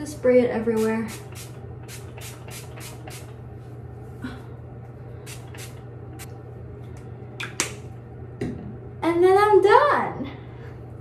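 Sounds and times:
steady low hum: 0.0s - 11.0s
spray bottle hissing: 1.1s - 3.3s, 5.3s - 5.8s.

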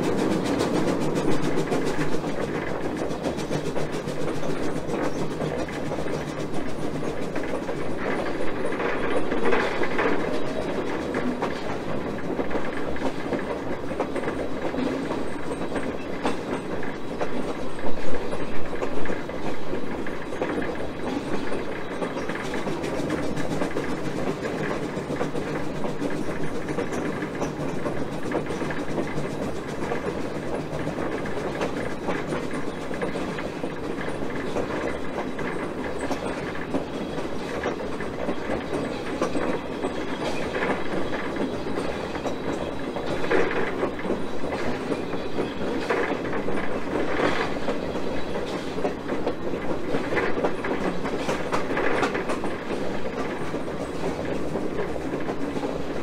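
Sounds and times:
loud wheel clacks: 0.0s - 17.6s
train wheels clattering on rail: 0.0s - 56.0s.

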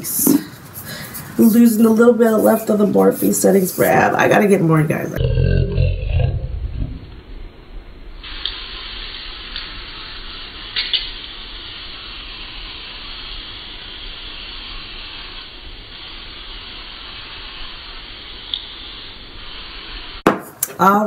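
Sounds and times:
spray misting hiss: 8.2s - 20.2s.

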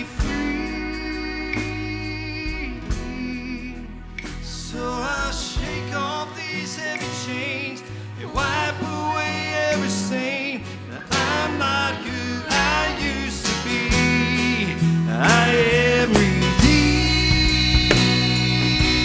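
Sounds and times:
band playing: 0.0s - 7.4s, 12.6s - 19.0s
acoustic guitar strumming: 0.0s - 19.0s
man singing: 0.0s - 19.0s.

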